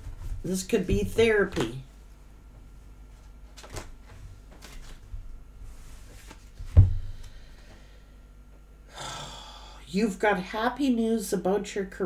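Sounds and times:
cards being shuffled: 3.2 - 5.1, 5.8 - 6.8
heavy thump: 6.7 - 7.2.

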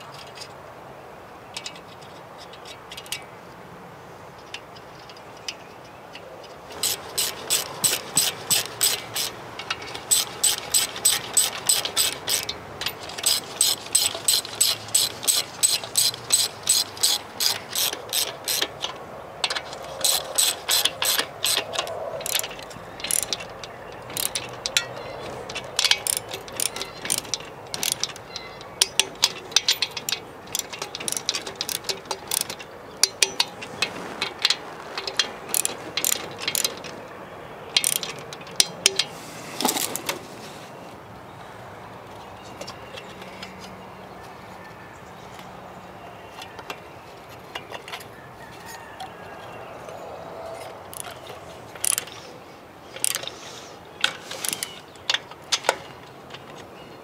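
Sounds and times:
ratchet wrench clicking: 6.7 - 33.6, 35.0 - 36.9, 37.8 - 39.1, 51.8 - 52.2, 53.0 - 53.3, 54.4 - 55.8.

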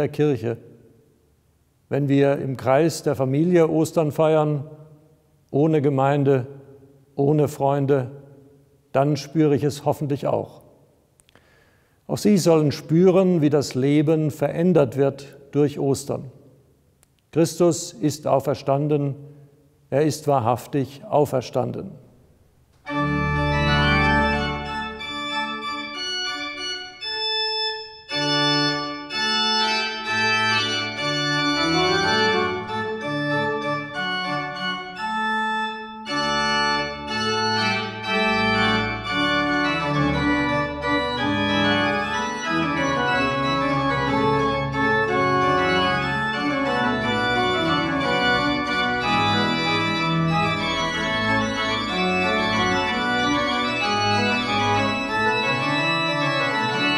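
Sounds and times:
pipe organ playing chords: 22.8 - 56.9.

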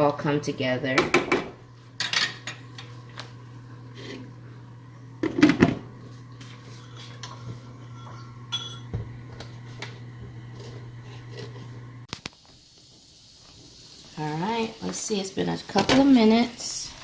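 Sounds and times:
glass lid clattering on pan: 8.5 - 8.9.

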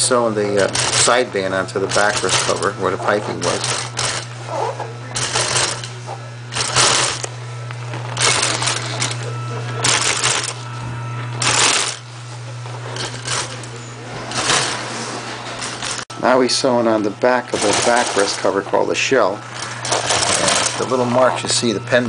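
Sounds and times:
sewing machine stitching: 0.0 - 7.3, 8.2 - 10.6, 11.4 - 12.0, 12.9 - 16.0, 17.4 - 18.8, 19.5 - 21.6
motor hum: 0.0 - 22.0.

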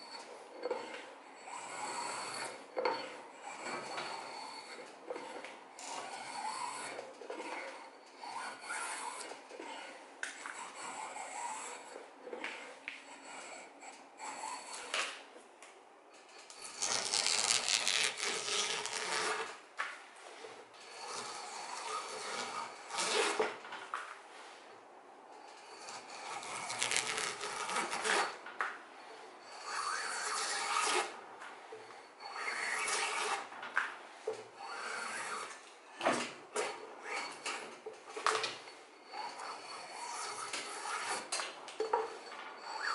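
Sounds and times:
drawknife shaving wood: 0.0 - 14.9, 16.6 - 19.6, 21.0 - 23.5, 25.7 - 28.4, 29.5 - 31.2, 32.3 - 33.4, 39.2 - 42.9.

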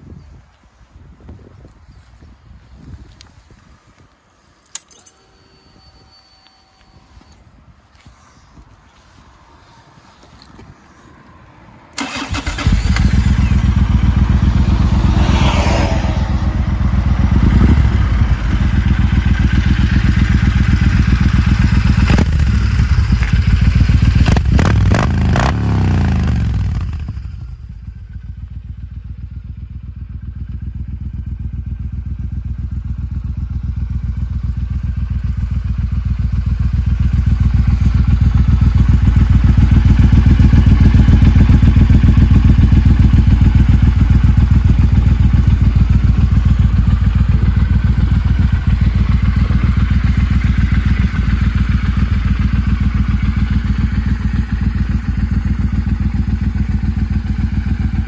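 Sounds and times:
motorcycle engine idling: 12.0 - 15.2, 16.3 - 58.0
motorcycle engine revving: 12.0 - 58.0.

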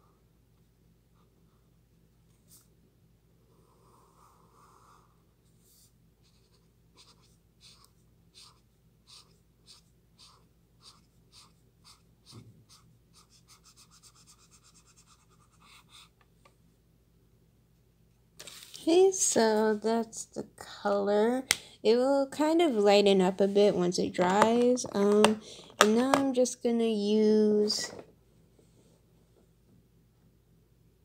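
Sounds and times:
marker rubbing on paper: 6.2 - 16.1.

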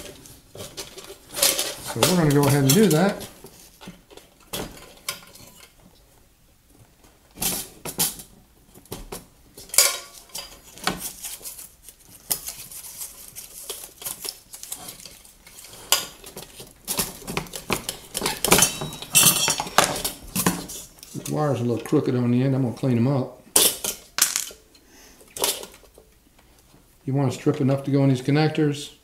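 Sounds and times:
scraping rustle: 10.1 - 21.4.

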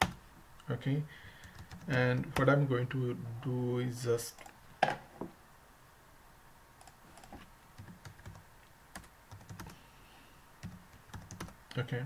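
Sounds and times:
computer keyboard typing: 1.4 - 2.5, 6.8 - 9.8, 10.6 - 11.6.

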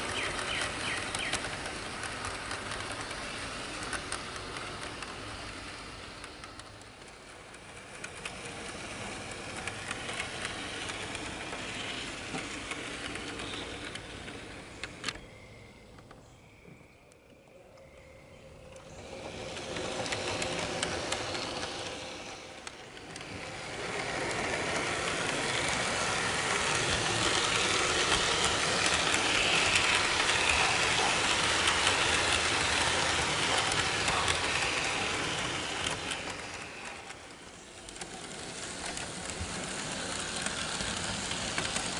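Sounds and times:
model train rolling on track: 0.0 - 41.9.

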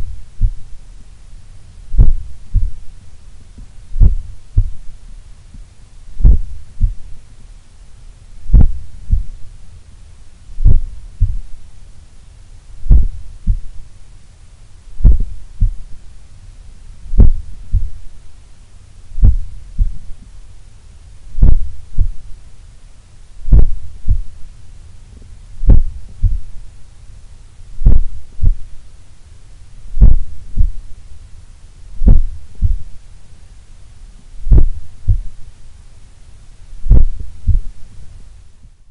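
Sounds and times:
heartbeat through stethoscope: 0.0 - 0.7, 1.9 - 2.9, 3.9 - 5.0, 6.2 - 7.2, 8.4 - 9.4, 10.6 - 11.6, 12.8 - 13.8, 15.0 - 16.0, 17.1 - 18.1, 19.2 - 20.2, 21.3 - 22.3, 23.4 - 24.4, 25.6 - 26.7, 27.8 - 28.8, 29.9 - 30.9, 32.0 - 33.0, 34.4 - 35.4, 36.8 - 37.8.

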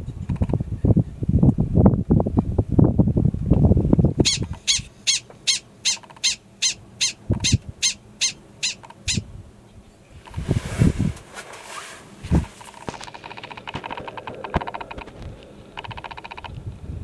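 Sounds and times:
prairie dog alarm barks: 4.2 - 9.2
low rumbling noise: 6.5 - 17.0.

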